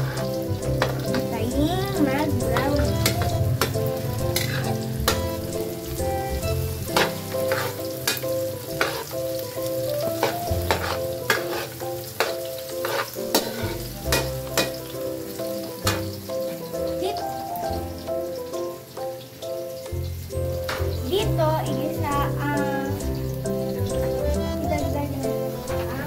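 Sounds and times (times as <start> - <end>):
metal spatula scraping wok: 0.0 - 17.0
garlic and onion sizzling: 0.0 - 26.0.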